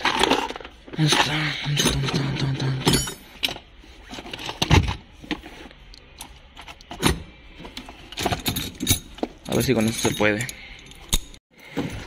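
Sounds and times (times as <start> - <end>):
metal hand tools clinking: 8.2 - 11.4.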